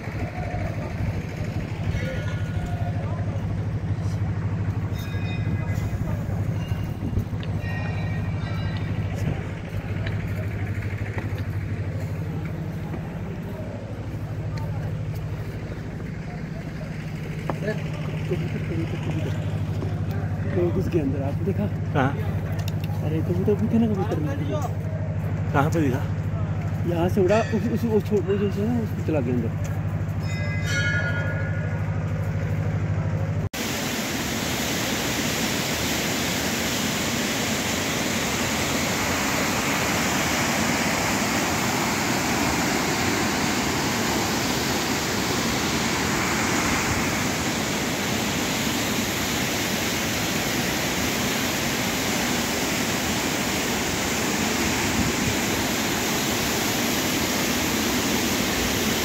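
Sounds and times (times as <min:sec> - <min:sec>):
waterfall rushing: 0:33.6 - 0:59.0.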